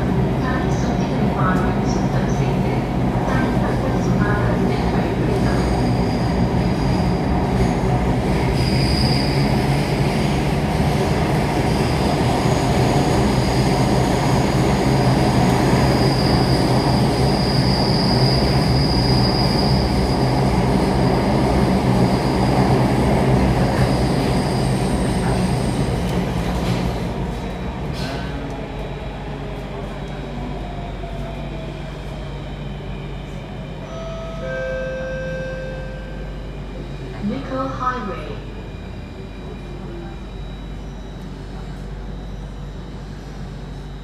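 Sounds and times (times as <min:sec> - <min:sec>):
train wheels rumbling on rail: 0:00.0 - 0:33.9
high-pitched wheel squeal: 0:08.5 - 0:09.5, 0:15.9 - 0:20.2.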